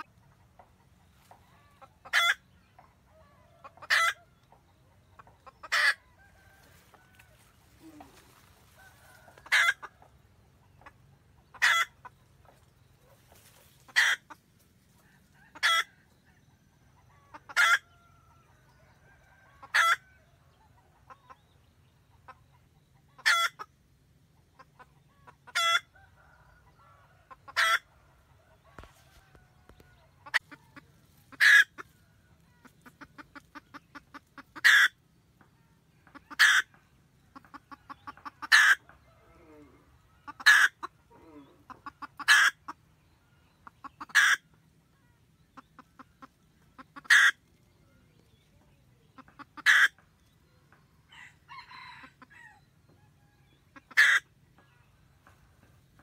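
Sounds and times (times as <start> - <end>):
hen cackling: 0.0 - 0.4, 1.2 - 2.5, 3.1 - 4.3, 5.2 - 10.0, 10.8 - 12.2, 13.1 - 14.4, 15.3 - 16.0, 17.1 - 17.9, 19.6 - 20.0, 23.1 - 23.8, 24.6 - 26.3, 27.2 - 27.9, 30.2 - 35.0, 36.0 - 42.9, 43.6 - 47.5, 49.1 - 50.1, 53.7 - 54.3
hen clucking: 0.0 - 56.0.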